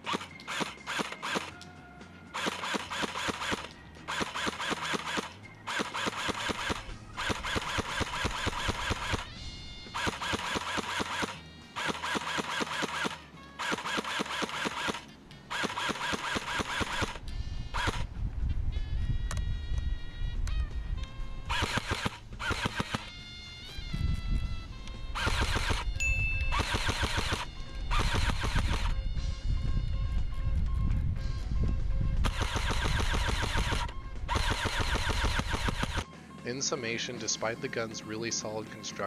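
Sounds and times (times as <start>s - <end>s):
airsoft rifle automatic bursts: 0.0s - 1.6s, 2.3s - 9.3s, 9.9s - 17.2s, 17.8s - 18.0s, 21.5s - 23.1s, 25.2s - 25.9s, 26.5s - 28.9s, 32.2s - 36.0s.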